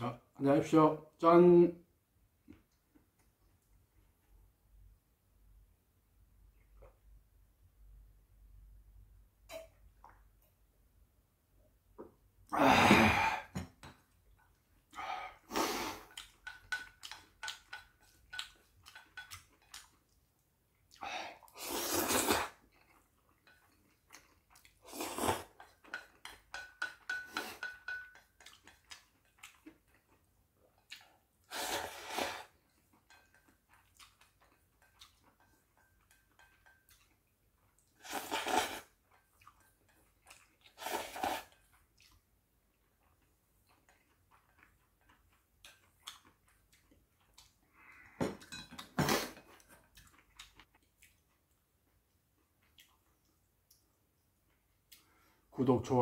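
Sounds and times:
chewing: 0:13.9 - 0:21.6, 0:22.4 - 0:26.5, 0:27.4 - 0:31.5, 0:32.4 - 0:55.3
loud noodle slurps: 0:21.4 - 0:22.6, 0:24.8 - 0:25.6, 0:31.5 - 0:32.6, 0:38.0 - 0:39.0, 0:40.7 - 0:41.6.

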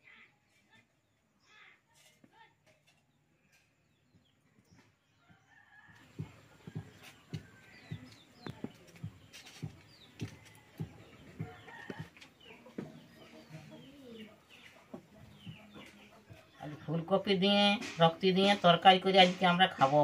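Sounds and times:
small birds chirping: 0:00.0 - 0:20.0
hens clucking: 0:06.1 - 0:20.0.

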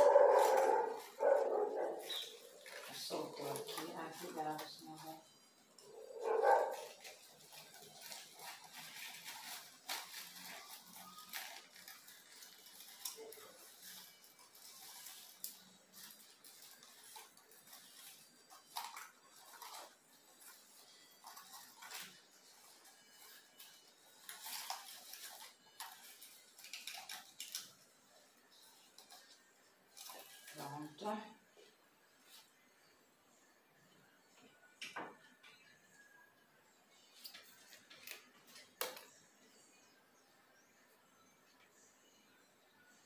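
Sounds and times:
leaves rustling: 0:00.0 - 0:04.8
plant leaves rustling and crackling: 0:00.0 - 0:27.8.

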